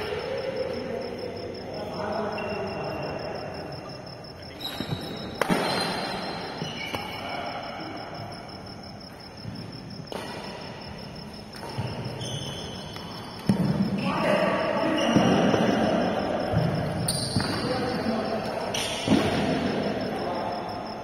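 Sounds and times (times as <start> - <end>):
high pulsing insect-like chirp: 0.0 - 21.0
racket smacking shuttlecock: 5.4 - 6.0.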